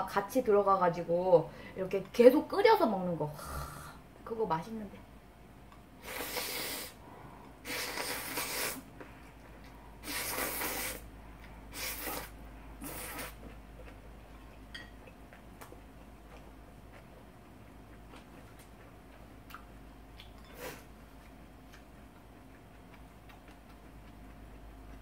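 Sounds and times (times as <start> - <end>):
person slurping noodles: 6.0 - 7.0, 7.6 - 8.9, 10.0 - 11.0, 11.7 - 13.4.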